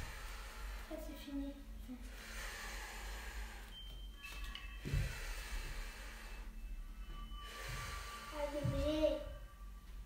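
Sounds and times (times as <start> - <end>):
person breathing out hard: 0.0 - 1.0, 2.0 - 3.8, 4.8 - 6.7.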